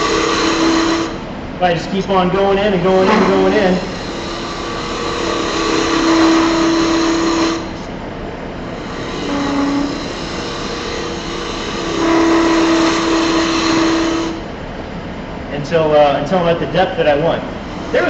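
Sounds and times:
gouge cutting wood on lathe: 0.0s - 1.2s, 2.9s - 7.9s, 8.6s - 14.5s, 17.6s - 18.0s
lathe humming: 0.0s - 18.0s.

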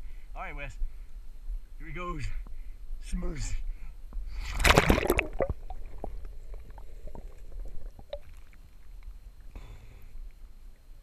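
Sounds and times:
muffled underwater river rumble: 4.1s - 11.0s
wash of water noise: 4.4s - 8.8s
small underwater clicks: 4.6s - 10.9s.

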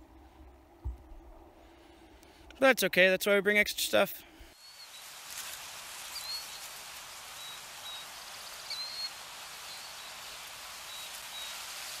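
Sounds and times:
outdoor ambient hiss: 0.0s - 12.0s
bird chirps: 4.5s - 5.1s, 6.1s - 6.7s, 7.3s - 11.7s.

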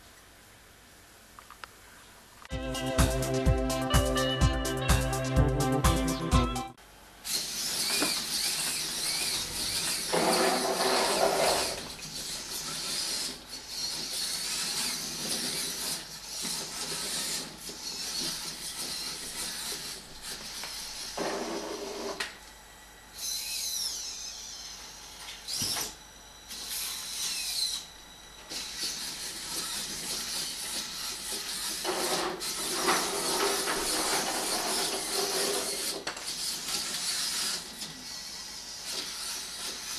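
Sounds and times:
robot motors whirring: 7.2s - 22.3s, 23.1s - 39.9s.

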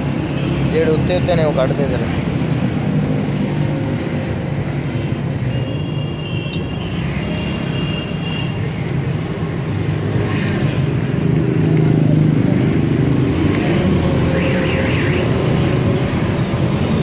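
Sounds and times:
road traffic rumble: 0.0s - 17.0s
vehicle engines close by: 8.6s - 17.0s.

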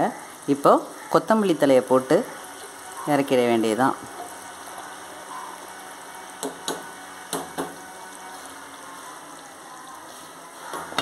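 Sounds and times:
pot simmering with bubbling hiss: 0.0s - 11.0s
utensil knocking against pot: 6.4s - 7.8s.

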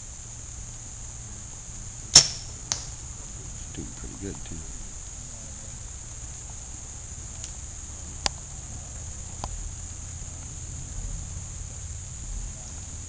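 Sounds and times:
high-pitched insect chorus: 0.0s - 13.0s
faint ticks: 8.2s - 8.4s.

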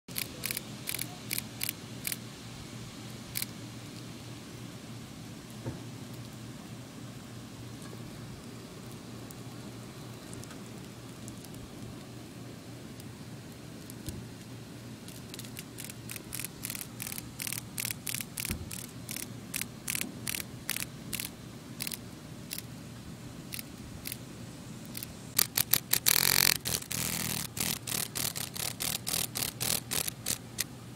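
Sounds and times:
cicada rasping buzzes: 0.1s - 2.2s, 3.3s - 3.6s, 15.0s - 22.8s, 23.5s - 30.7s.

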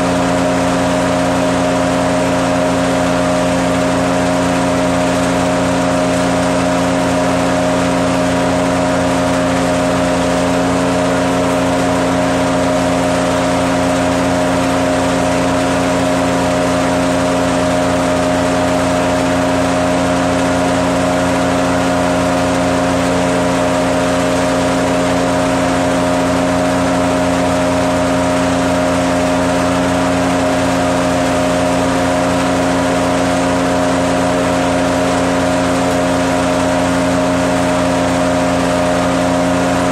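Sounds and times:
wood chipper running: 0.0s - 39.9s.

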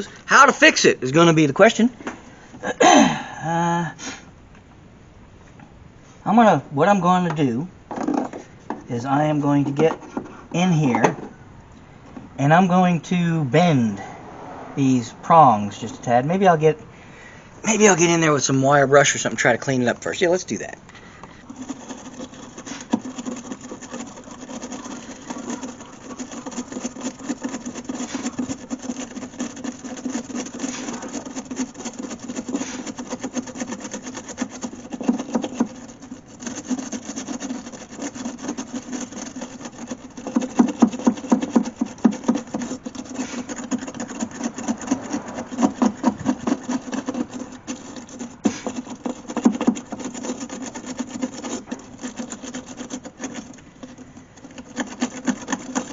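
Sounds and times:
wire brush scrubbing: 0.0s - 1.8s, 17.6s - 55.9s.

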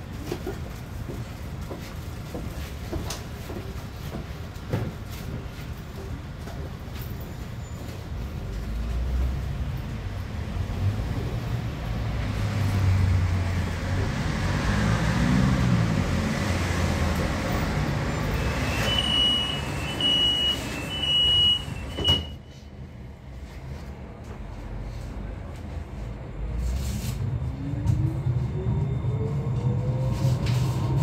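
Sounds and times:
tram motors humming: 8.6s - 22.3s, 25.2s - 31.0s
short high beeps: 18.5s - 22.4s.

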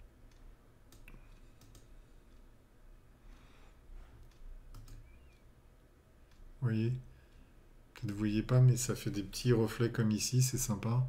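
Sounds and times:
faint computer mouse clicks: 0.3s - 2.5s, 4.2s - 5.5s.

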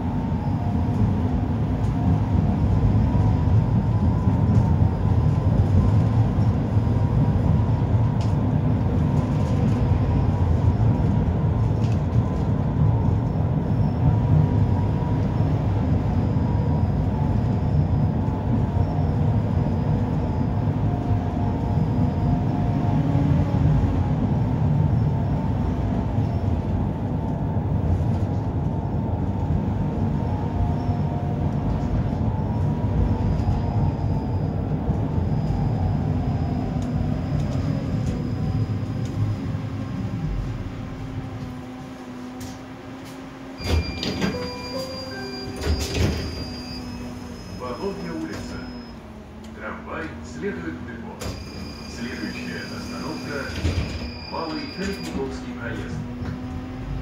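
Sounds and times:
tram wheels rumbling on rail: 0.0s - 57.0s
faint high whine: 43.6s - 57.0s.

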